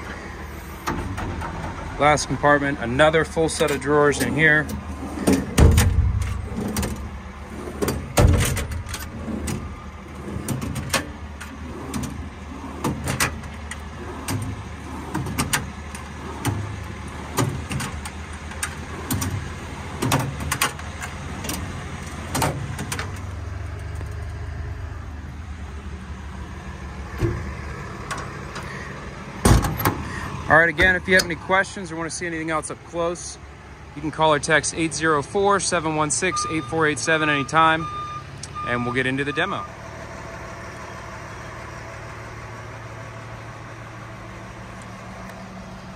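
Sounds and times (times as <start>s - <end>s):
metal drawers sliding and knocking shut: 0.0s - 2.3s, 3.0s - 23.2s, 27.1s - 28.7s, 29.4s - 31.4s
steady low rumble: 0.0s - 20.0s.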